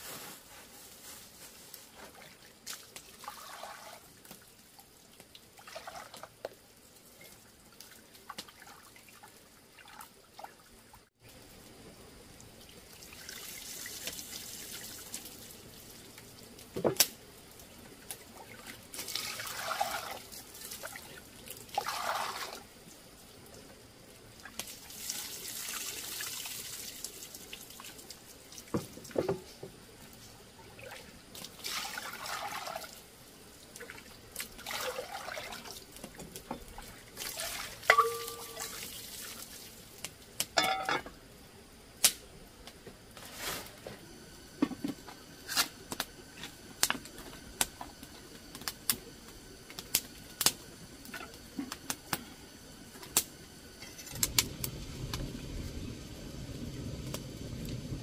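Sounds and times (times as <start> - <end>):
water splashing and trickling: 1.4 - 29.3, 30.0 - 40.9.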